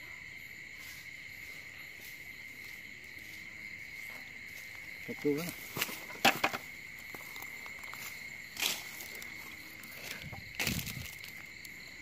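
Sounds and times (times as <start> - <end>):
night insects chirring: 0.0 - 12.0
footsteps on dry leaves: 2.6 - 6.2, 7.0 - 11.7.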